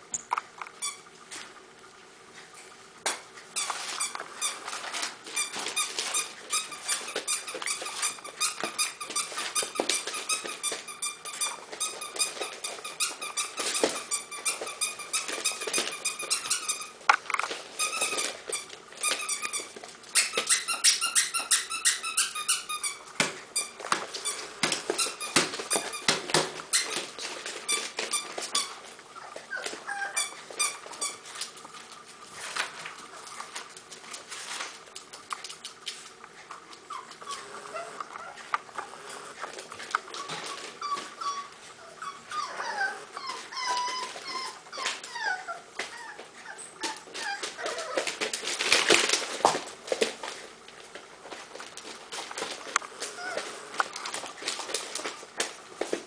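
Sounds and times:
puppies squealing and whining: 0:03.6 - 0:17.0, 0:17.7 - 0:31.4, 0:36.8 - 0:38.5, 0:39.9 - 0:49.2, 0:53.0 - 0:53.8.

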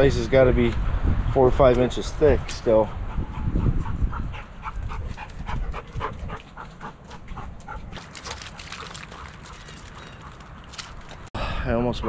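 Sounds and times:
wind rumbling on microphone: 0:00.0 - 0:11.3
dog panting fast: 0:02.9 - 0:10.4.

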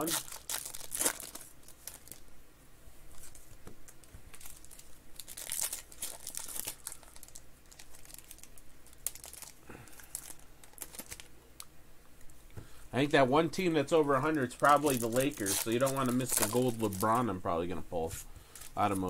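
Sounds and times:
foil wrapper tearing and crinkling: 0:00.0 - 0:02.2, 0:04.3 - 0:11.3, 0:14.5 - 0:17.2.

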